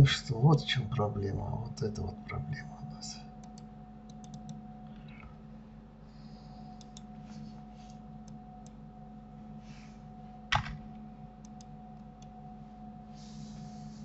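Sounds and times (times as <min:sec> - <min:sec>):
steady low hum: 0:00.0 - 0:14.0
keyboard and mouse clicks: 0:03.4 - 0:05.2.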